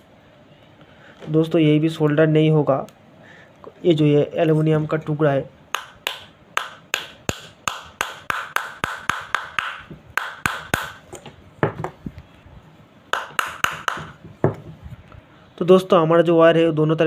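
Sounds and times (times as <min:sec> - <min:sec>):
hammer tapping on metal: 0:05.8 - 0:11.0, 0:13.2 - 0:14.6.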